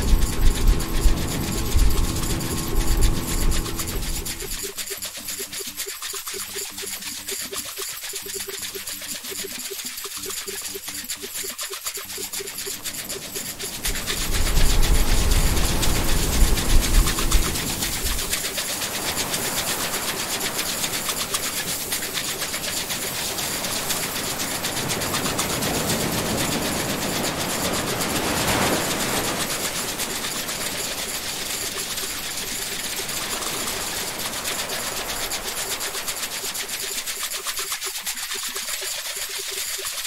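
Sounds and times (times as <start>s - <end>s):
fast mechanical ticking: 0.0s - 40.0s
ocean surf washing over rocks: 13.4s - 31.8s.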